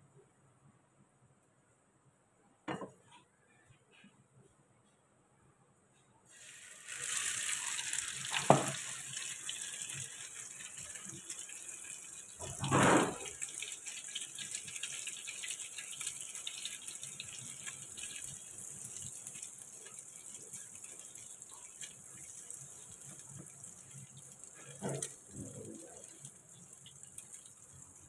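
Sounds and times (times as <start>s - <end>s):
bread sizzling in frying pan: 6.3s - 28.0s.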